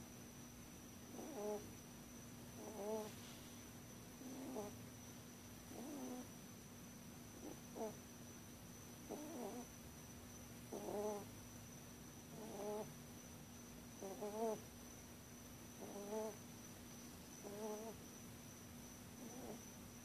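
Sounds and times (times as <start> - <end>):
rabbit snoring: 1.1 - 1.8, 2.5 - 3.5, 4.2 - 4.8, 5.6 - 6.3, 7.4 - 8.0, 9.0 - 9.7, 10.7 - 11.3, 12.3 - 13.0, 14.0 - 14.7, 15.8 - 16.4, 17.4 - 18.0, 19.2 - 19.7.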